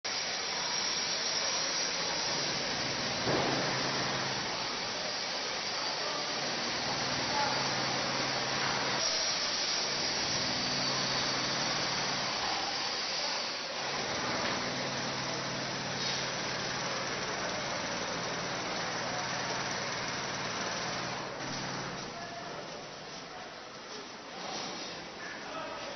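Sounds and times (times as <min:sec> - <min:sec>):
hissing construction site noise: 0:00.1 - 0:25.9.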